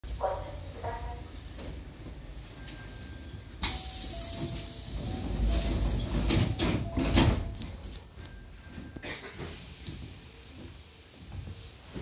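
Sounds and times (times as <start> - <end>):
hiss of air: 3.6 - 6.5, 9.4 - 11.8
sliding doors thudding shut: 4.5 - 7.6.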